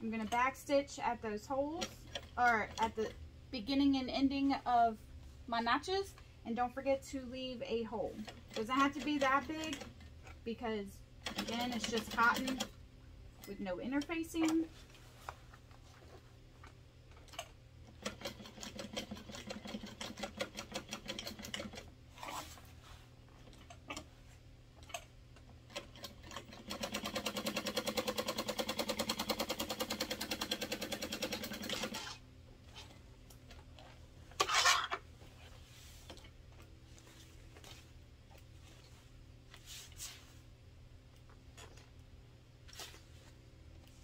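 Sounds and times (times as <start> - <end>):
sewing machine stitching: 25.7 - 32.2.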